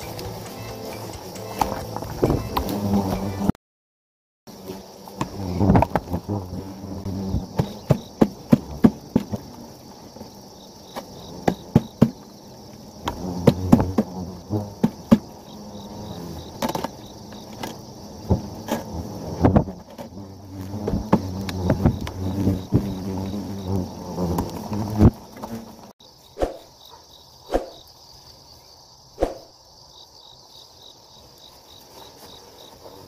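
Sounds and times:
hornets buzzing: 0.0s - 3.6s, 4.5s - 26.8s.

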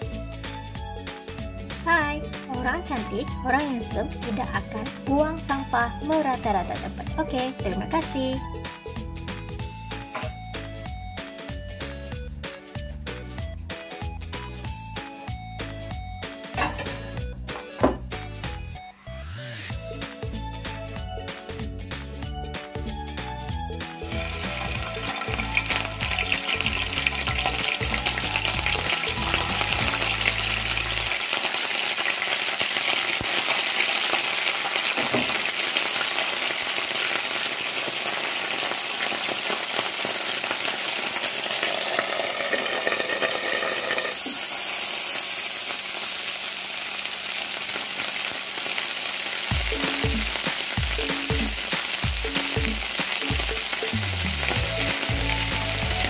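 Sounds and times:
fish sizzling in a pan: 24.0s - 56.0s.

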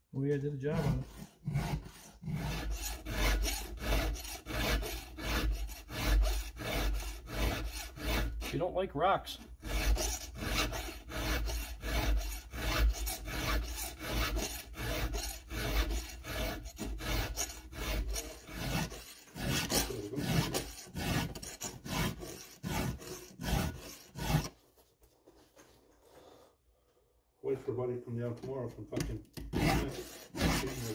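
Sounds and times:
hand file rasping on chain: 0.6s - 8.6s, 9.4s - 24.6s, 29.6s - 30.9s.

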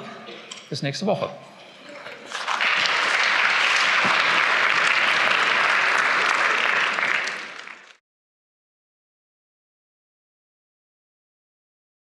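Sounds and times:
audience applauding: 2.0s - 8.0s.

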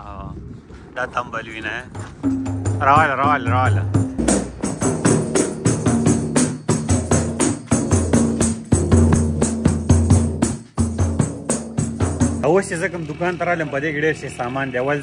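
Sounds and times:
background music with bass line: 2.0s - 15.0s
tambourine struck by hand: 4.3s - 12.5s.

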